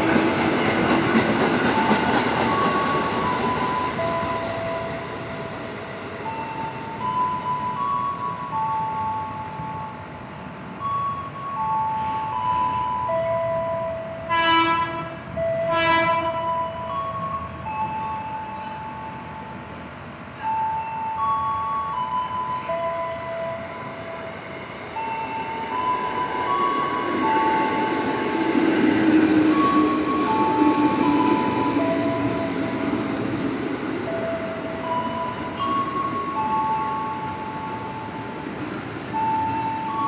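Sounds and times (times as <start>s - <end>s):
electric train pulling in: 0.0s - 40.0s
slow chime-like melody: 6.2s - 10.2s, 10.8s - 13.8s, 16.4s - 19.5s, 20.5s - 24.3s, 33.6s - 38.4s
high wheel squeals: 23.6s - 40.0s.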